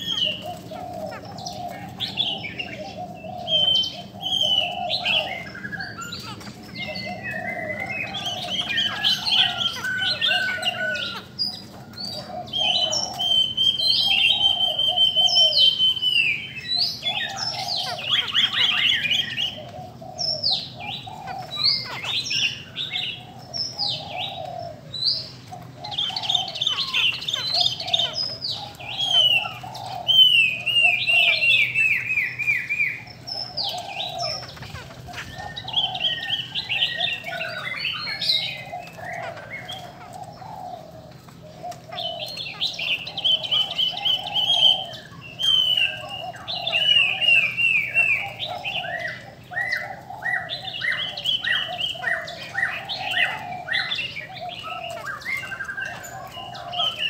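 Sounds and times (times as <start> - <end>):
birds singing whistled phrases: 0.0 - 57.0.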